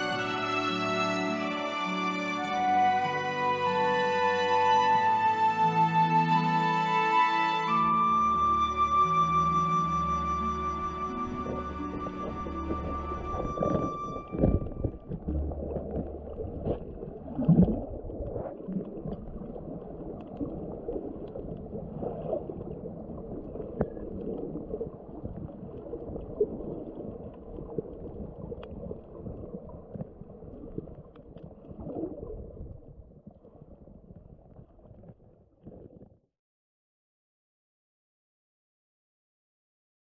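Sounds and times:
underwater sloshing and gurgling: 9.8 - 36.2.

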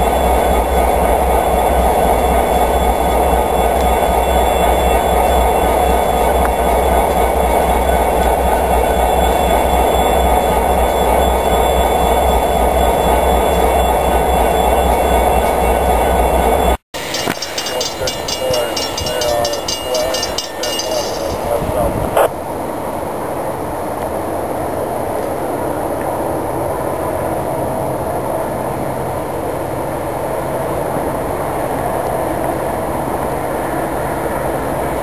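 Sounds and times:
crossing warning bell ringing: 0.0 - 22.1
freight train rumbling past: 0.0 - 25.6.

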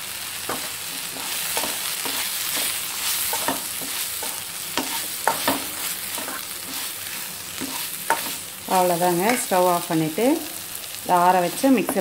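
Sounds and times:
greens sizzling in a pan: 0.0 - 12.0
wooden spatula scraping a pan: 0.5 - 9.6.

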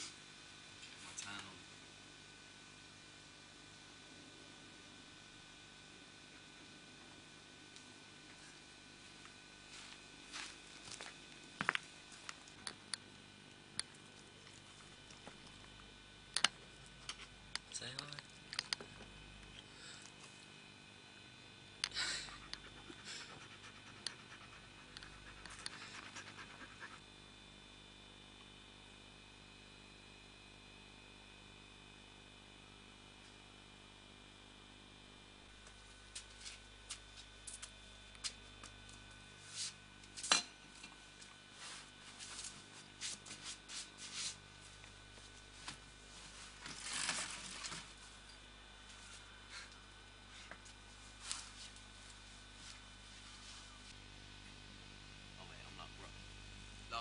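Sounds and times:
dog panting: 22.3 - 27.0.

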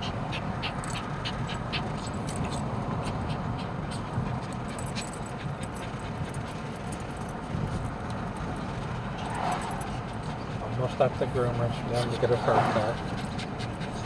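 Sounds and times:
small dogs whimpering: 0.0 - 6.4
road noise: 0.0 - 14.0.

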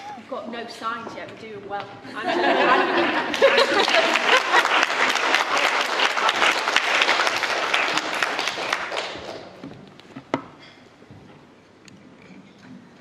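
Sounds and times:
audience applauding: 2.8 - 9.6.

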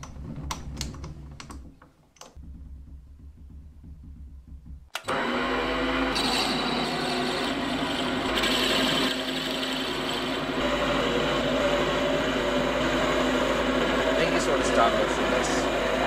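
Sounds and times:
lathe machine hum: 4.9 - 16.0
cutter scraping wood: 6.0 - 10.7.

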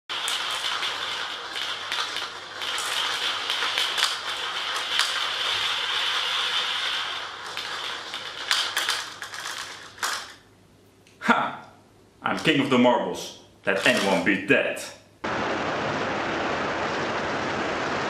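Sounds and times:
marbles clacking: 0.1 - 10.4, 13.7 - 14.2
marbles rolling in plastic funnel: 0.1 - 10.4, 13.7 - 14.2.

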